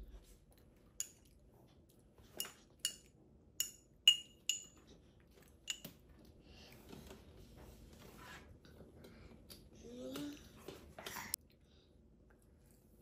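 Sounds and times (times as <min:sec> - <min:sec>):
metal spoon clinking on glass: 0:02.4 - 0:04.8.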